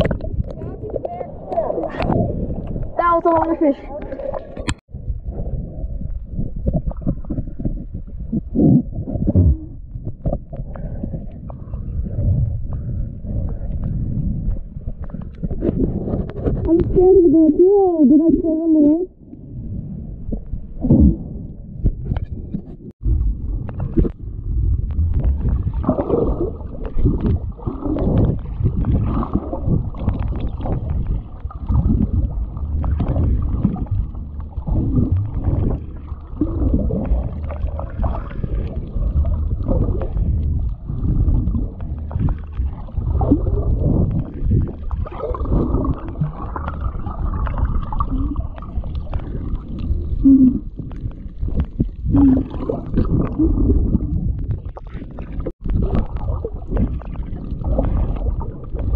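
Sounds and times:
underwater water sloshing: 0.0s - 58.9s.

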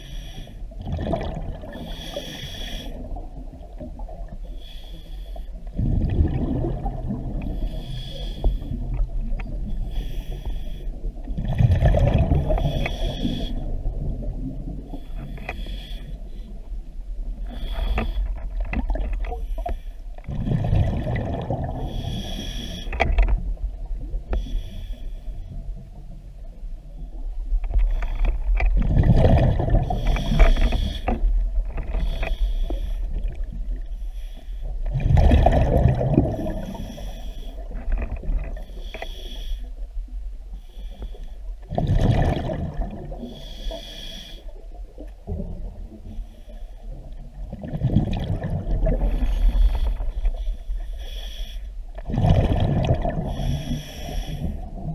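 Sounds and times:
exhaled bubbles underwater: 0.7s - 4.5s, 5.7s - 9.9s, 10.9s - 15.1s, 17.4s - 19.4s, 20.2s - 22.4s, 28.5s - 33.9s, 34.7s - 38.7s, 41.6s - 43.5s, 46.9s - 50.5s, 52.0s - 54.9s.

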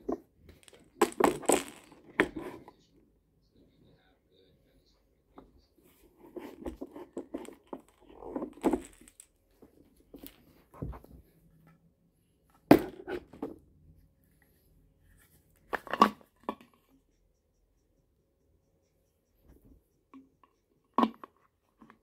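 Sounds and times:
plastic parts rustling and clicking: 6.5s - 10.5s.

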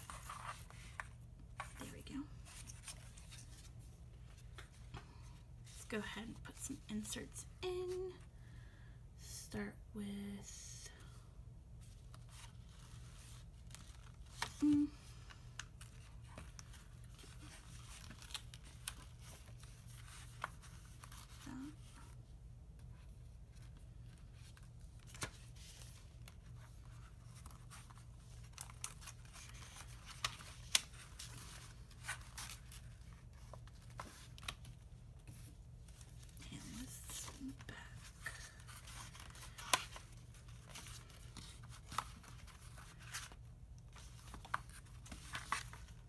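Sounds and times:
paper rustling: 0.0s - 5.2s, 23.5s - 46.0s.

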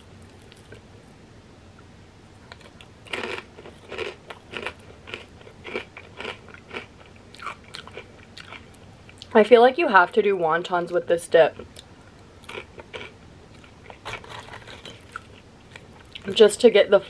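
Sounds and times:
crunching and chewing chips: 2.5s - 9.3s, 11.6s - 16.4s.

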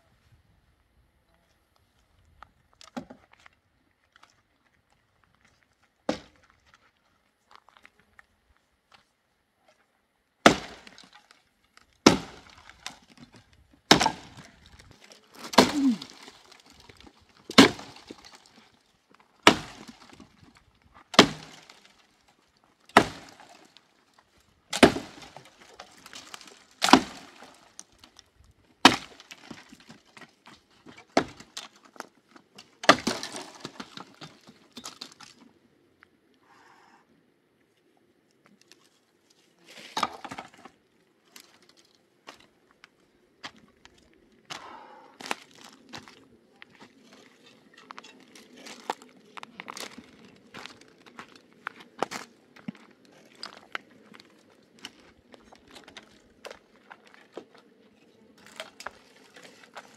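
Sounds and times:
wood cracking and splintering: 10.4s - 35.4s, 45.2s - 57.5s, 58.4s - 59.9s
crackle of debris: 10.5s - 35.6s.

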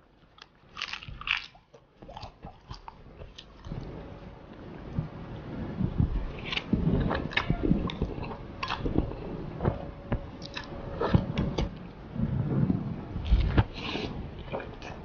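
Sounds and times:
wet chewing and smacking: 0.2s - 4.0s, 6.0s - 12.0s
slurping noodles: 13.2s - 15.0s.

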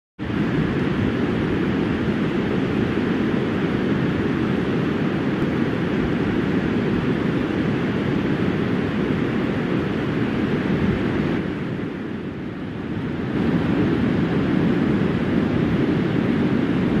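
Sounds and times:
wind buffeting microphone: 0.2s - 17.0s.

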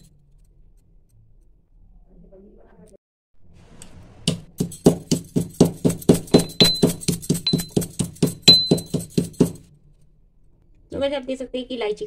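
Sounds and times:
steel pestle pounding in mortar: 4.3s - 9.7s
high metallic ring: 4.6s - 9.7s.

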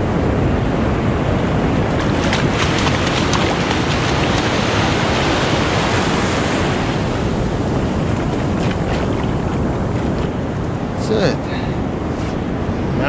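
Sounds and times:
wind buffeting microphone: 0.0s - 13.0s
surf breaking on beach: 1.3s - 11.1s.

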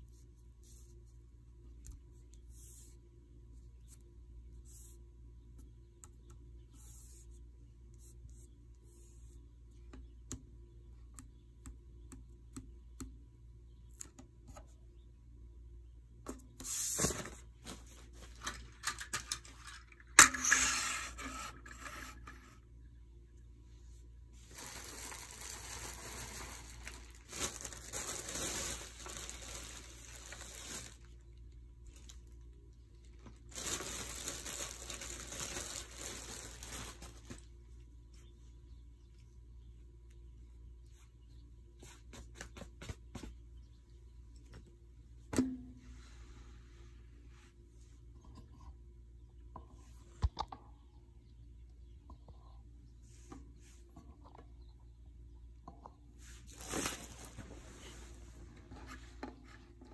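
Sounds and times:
paper rustling and crinkling: 16.7s - 19.9s, 24.4s - 31.2s, 33.0s - 37.5s, 56.4s - 59.6s.

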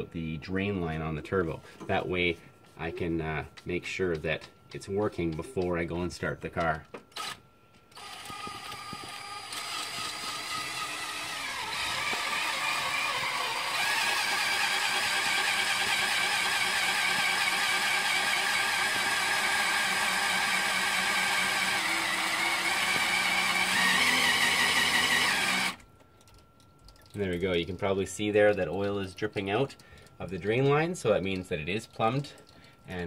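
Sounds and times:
cordless drill whining under load: 7.1s - 25.8s.

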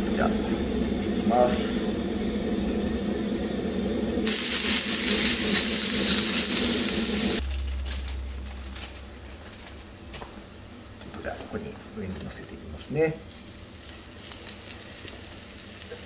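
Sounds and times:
food sizzling in hot oil: 4.2s - 7.9s, 13.2s - 16.0s.

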